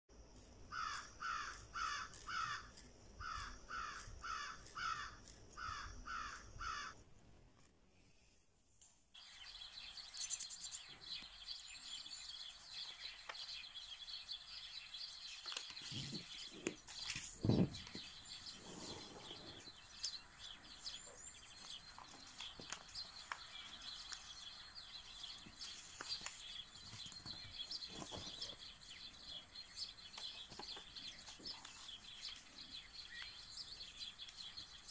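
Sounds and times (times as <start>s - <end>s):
small birds chirping: 0.2s - 7.0s, 9.2s - 34.9s
crow cawing: 0.7s - 7.0s.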